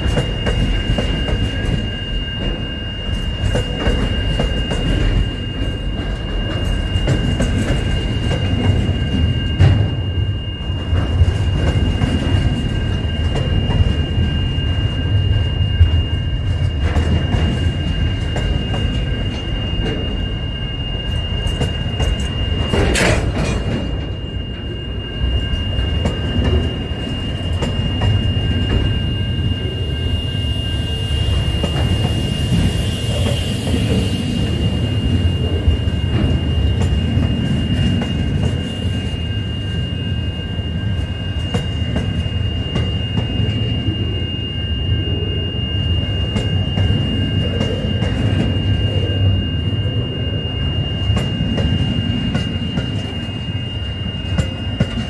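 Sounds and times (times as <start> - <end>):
high wheel squeal: 0.0 - 55.0
train wheels rumbling on rails: 0.0 - 55.0.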